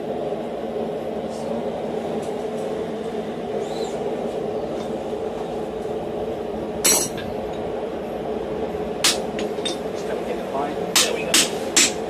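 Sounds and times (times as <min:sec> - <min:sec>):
low hum: 0:00.0 - 0:10.3
hammer striking steel punch: 0:09.0 - 0:09.8, 0:11.0 - 0:12.0.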